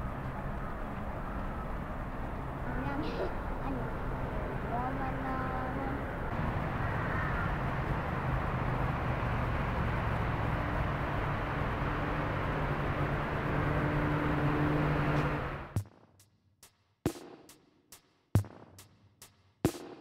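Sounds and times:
city traffic rumble: 0.0 - 15.8
engine hum: 0.0 - 15.8.

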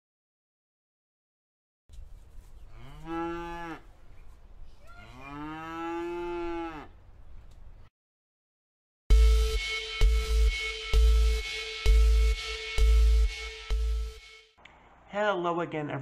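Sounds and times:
cow mooing: 2.7 - 3.9, 4.8 - 7.0.

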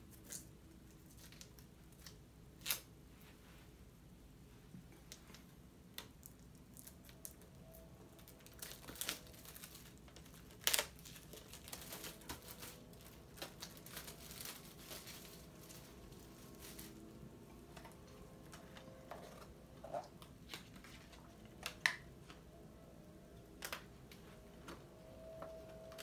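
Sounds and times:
plastic wrapping crackling: 5.1 - 22.0.

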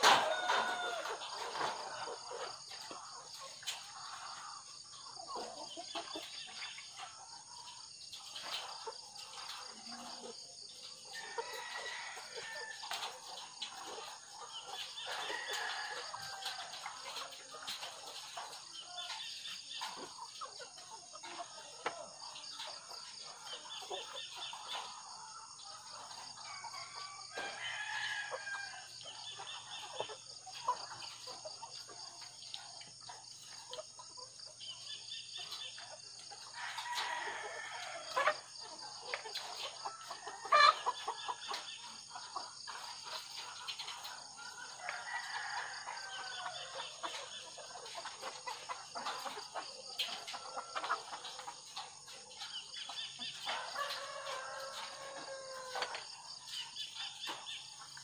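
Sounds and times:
hens clucking and calling: 0.0 - 58.0.

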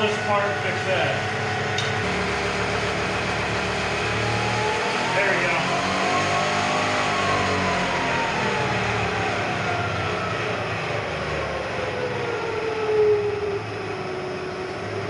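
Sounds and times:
milling machine whine: 0.0 - 15.0.

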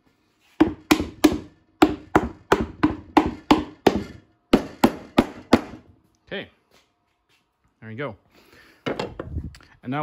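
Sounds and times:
rubber mallet knocking wood: 0.6 - 5.8.

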